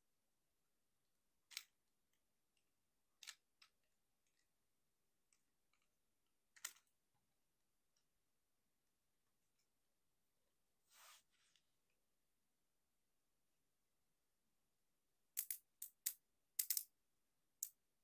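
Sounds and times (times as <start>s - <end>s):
plastic toy parts clicking: 1.5s - 1.8s, 3.1s - 4.4s, 6.5s - 6.9s, 15.4s - 16.9s.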